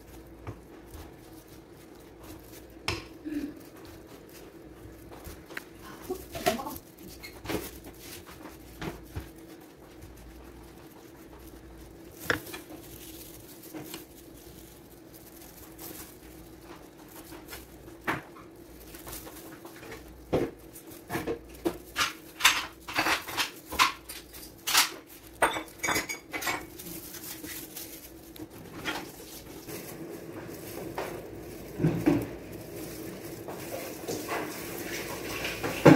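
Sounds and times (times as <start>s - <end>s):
utensils and bowls clinking: 18.2s - 35.9s.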